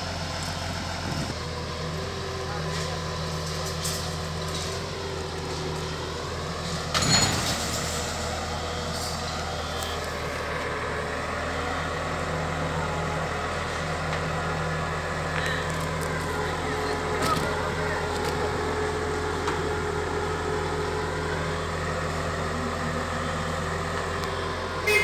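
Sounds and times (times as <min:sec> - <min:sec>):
diesel engine running: 0:00.0 - 0:25.0
loud engine burst: 0:06.6 - 0:09.1.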